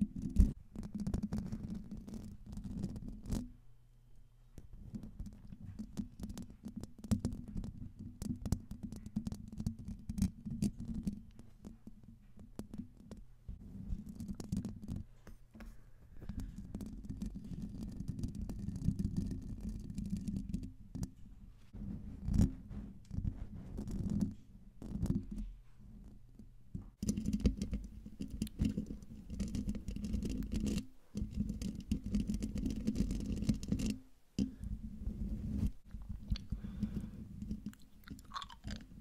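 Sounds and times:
fingernails scratching microphone grille: 27.0s - 37.8s.

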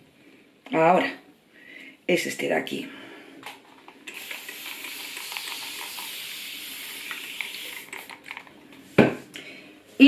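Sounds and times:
spray bottle hissing: 4.1s - 8.5s.

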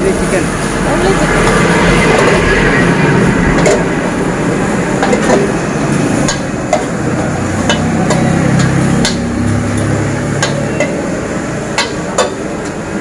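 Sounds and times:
gas burner rushing: 0.0s - 13.0s
steel ladle clanking against wok: 5.0s - 12.9s.

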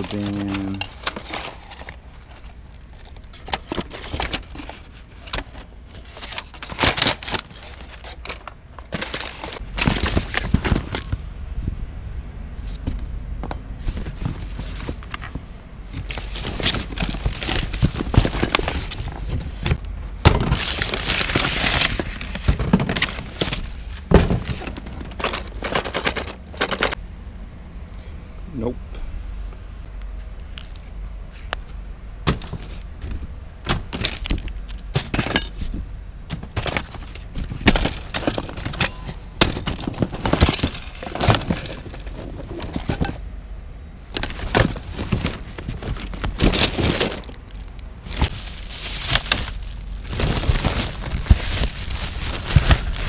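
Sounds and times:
items knocking and clattering: 0.0s - 11.2s, 12.8s - 27.0s, 32.2s - 43.2s, 44.1s - 53.0s
paper and plastic rustling: 0.0s - 11.2s, 13.8s - 27.0s, 30.6s - 43.2s, 44.1s - 53.0s.

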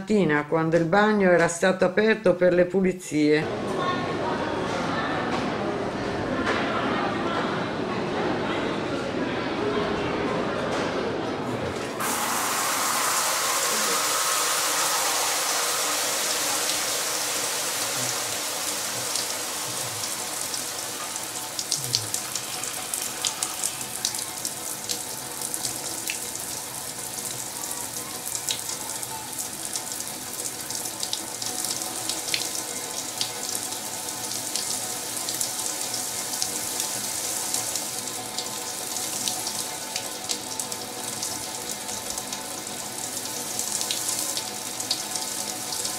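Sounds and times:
shower water spraying: 11.7s - 45.9s
sharp drips and splashes: 12.0s - 45.9s.

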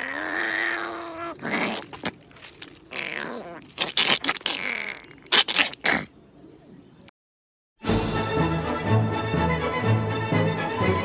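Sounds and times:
dog yelping and snarling: 0.0s - 6.1s.

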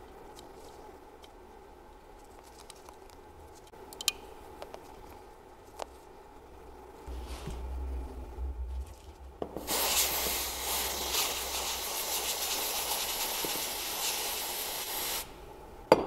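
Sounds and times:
aerosol spray hissing: 9.6s - 15.3s.

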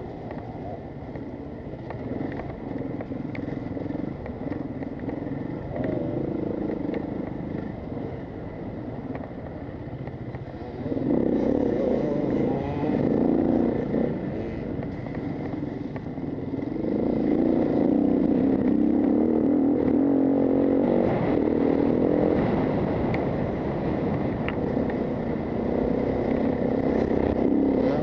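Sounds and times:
motorcycle engine revving: 0.0s - 28.0s
knocks and rattles from motorcycle: 0.1s - 8.0s.

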